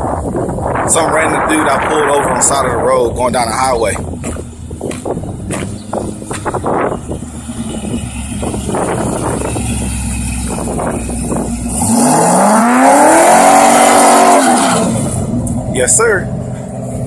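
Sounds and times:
car engine idling and revving: 0.0s - 17.0s.

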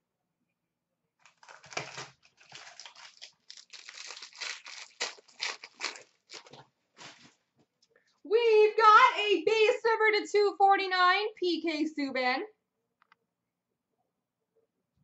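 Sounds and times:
card pack wrapper crinkling: 1.2s - 7.3s.

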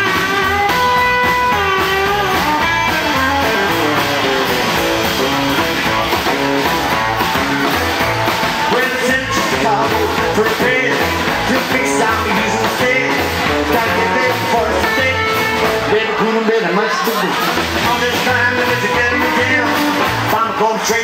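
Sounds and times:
rock and roll band playing: 0.0s - 21.0s
man singing: 8.5s - 21.0s.

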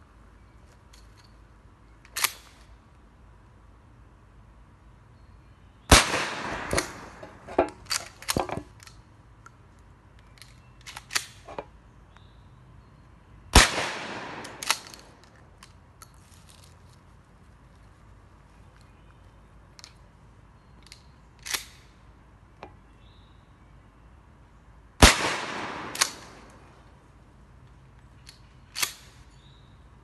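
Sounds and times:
gun action clicks: 2.0s - 2.7s, 6.4s - 11.7s, 14.1s - 16.7s, 19.7s - 20.1s, 20.8s - 22.0s, 25.5s - 26.6s, 28.1s - 29.5s
gunshots with echo: 5.9s - 7.2s, 13.6s - 14.8s, 25.0s - 26.5s.

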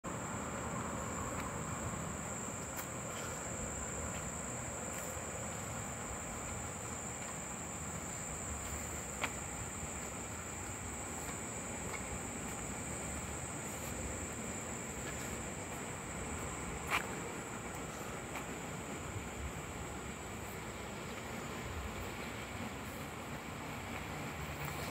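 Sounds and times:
low rushing background noise: 0.0s - 24.9s.

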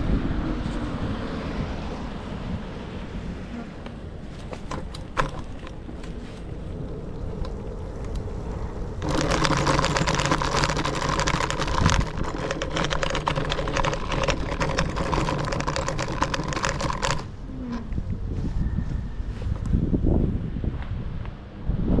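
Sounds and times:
scooter motor humming: 0.0s - 20.0s
rapid rattling clicks: 4.4s - 6.6s, 9.0s - 17.3s.

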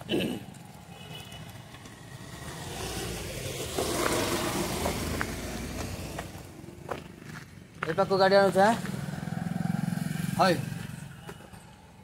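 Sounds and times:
vehicle passing by: 1.5s - 7.5s, 8.2s - 11.8s.

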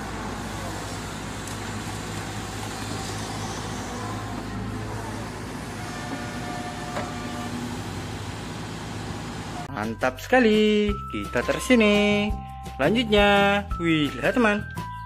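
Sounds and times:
diesel engine droning: 0.0s - 9.7s.

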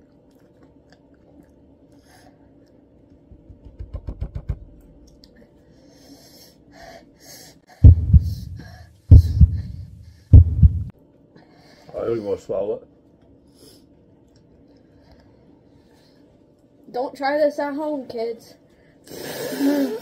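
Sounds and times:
hissing breaths: 5.6s - 10.3s, 18.8s - 20.0s
man panting and blowing: 6.1s - 10.3s.

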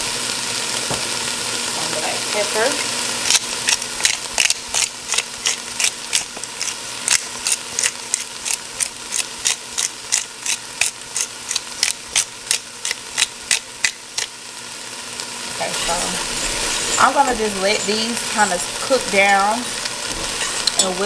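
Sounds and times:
pepper grinder clicking: 3.2s - 14.3s.

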